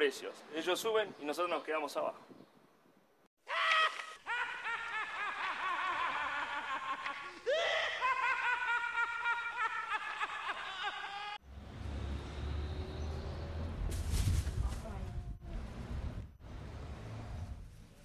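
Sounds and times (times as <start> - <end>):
high-pitched voices laughing: 3.5 - 11.4.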